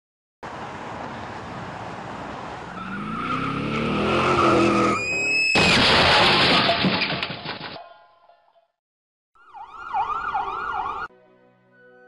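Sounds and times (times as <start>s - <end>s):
road noise inside truck cab: 0.4s - 5.5s
car crashing into lorry: 4.8s - 7.8s.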